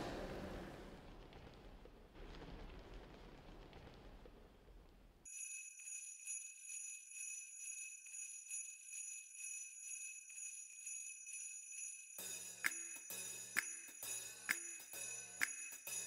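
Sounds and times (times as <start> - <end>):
sleigh bells jingling: 5.3 - 16.0.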